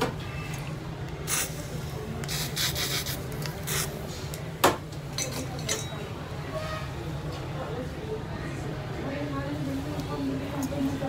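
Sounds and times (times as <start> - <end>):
spray bottle hissing: 1.3 - 4.0.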